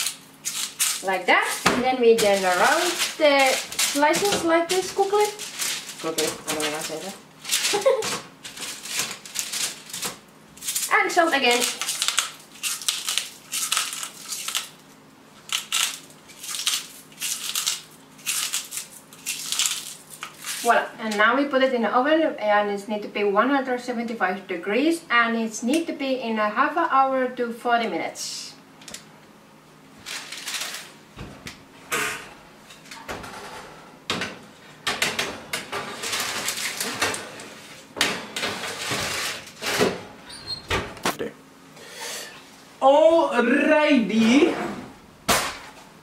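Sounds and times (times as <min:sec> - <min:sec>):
salt grinder crunching: 0:00.0 - 0:14.8, 0:15.4 - 0:20.7
oven door opening: 0:31.2 - 0:34.3, 0:34.9 - 0:41.1.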